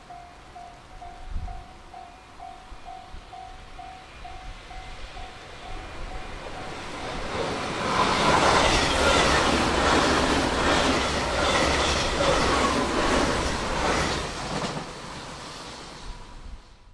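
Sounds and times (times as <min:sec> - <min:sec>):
level-crossing bell dinging: 0:00.0 - 0:07.2
electric train passing: 0:00.0 - 0:16.9.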